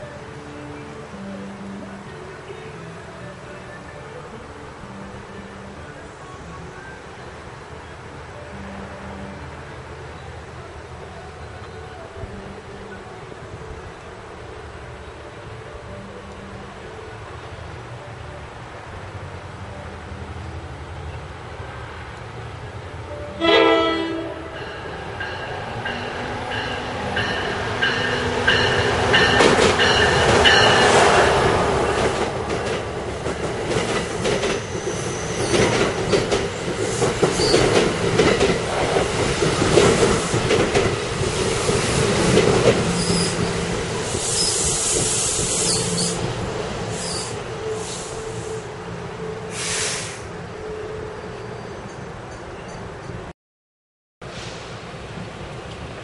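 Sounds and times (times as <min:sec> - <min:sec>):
train horn blast: 0:23.1 - 0:25.0
train wheels clacking on rails: 0:24.6 - 0:46.3
wheels squealing: 0:33.9 - 0:37.9, 0:41.3 - 0:46.3, 0:46.9 - 0:48.7.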